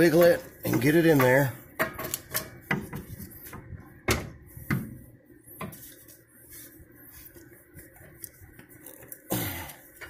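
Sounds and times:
metal axle clunking and rattling: 0.0 - 4.4.

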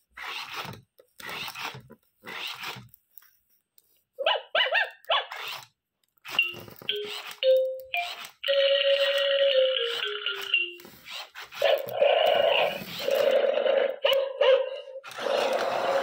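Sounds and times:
toy beeping tune: 6.3 - 10.9.

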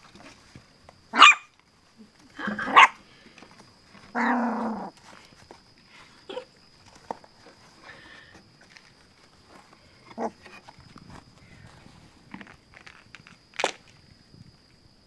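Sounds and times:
puppy yips: 1.2 - 1.5.

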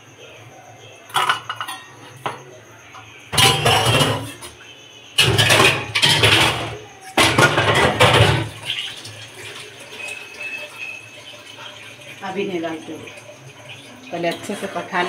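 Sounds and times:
water pouring: 8.3 - 15.0.

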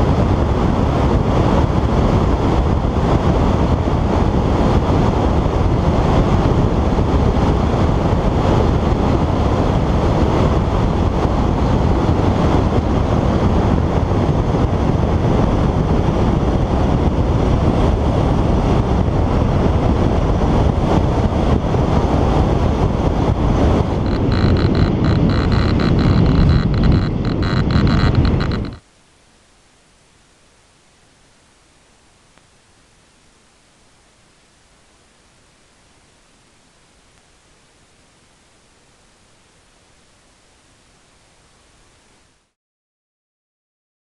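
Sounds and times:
wind buffeting microphone: 0.0 - 28.8.

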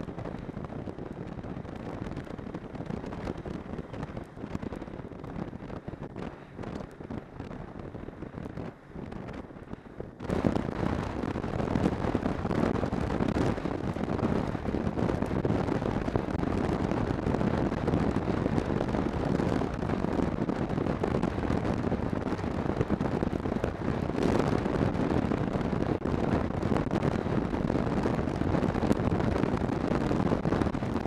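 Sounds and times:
wind rushing over microphone: 0.0 - 31.0.

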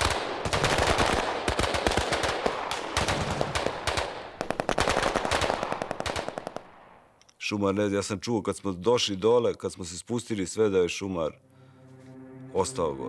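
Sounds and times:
automatic gunfire: 0.0 - 6.9.

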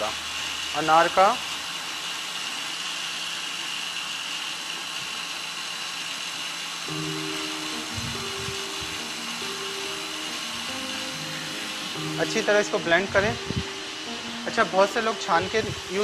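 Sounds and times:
blender whining: 0.0 - 16.0
background music: 6.9 - 16.0.

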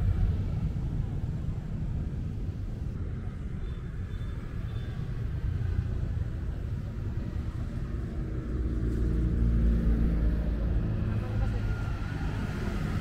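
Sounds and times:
low rumble of road traffic: 0.0 - 13.0
approaching vehicle engine hum: 4.3 - 13.0.

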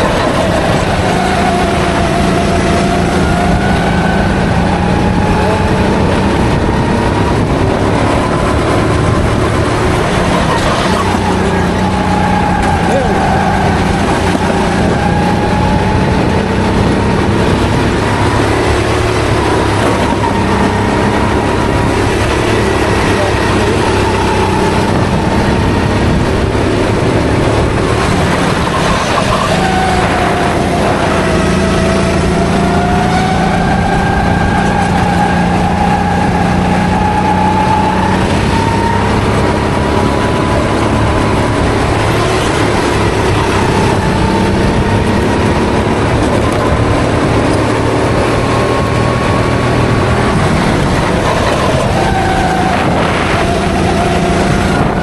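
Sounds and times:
go-kart engine revving: 0.0 - 55.0
steady low drone: 0.0 - 55.0.

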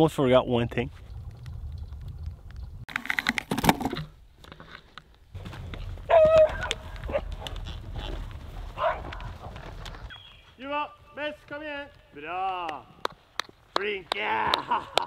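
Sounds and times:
dog barking: 6.1 - 7.3, 8.8 - 9.2.

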